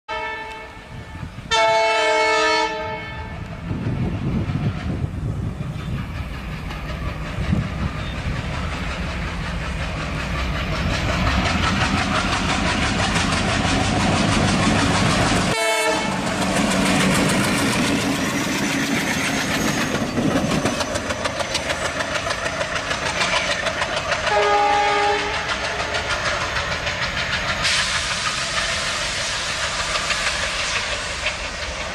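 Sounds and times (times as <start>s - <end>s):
locomotive horn: 0.1s - 3.5s, 15.5s - 16.3s, 24.2s - 26.0s
diesel locomotive engines: 0.1s - 31.9s
wheels clattering over rail joints: 16.2s - 28.9s.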